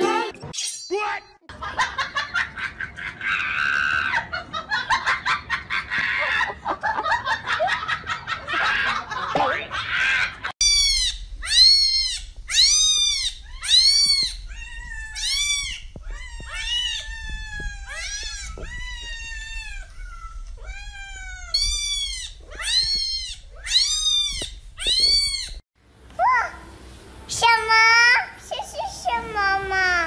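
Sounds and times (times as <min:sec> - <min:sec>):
cat meowing: 0:10.7 - 0:25.6.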